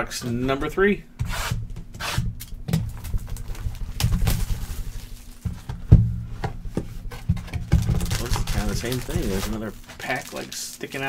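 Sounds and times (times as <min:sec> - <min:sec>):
cardboard box rustling and scraping: 0:02.9 - 0:10.4.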